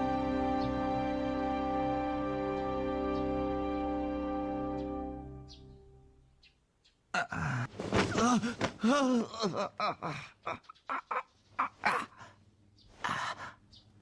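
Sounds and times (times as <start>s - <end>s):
person gasping: 7.2s - 10.5s, 13.0s - 13.7s
person groaning: 7.2s - 12.2s.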